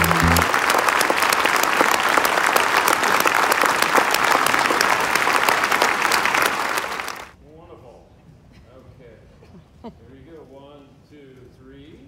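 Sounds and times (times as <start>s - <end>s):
band's held chord: 0.0s - 0.6s
audience applauding: 0.0s - 7.4s.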